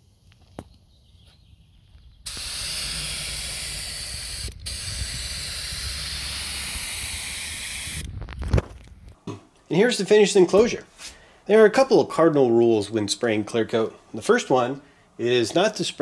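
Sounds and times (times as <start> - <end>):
spray gun hissing: 2.3 - 8.0.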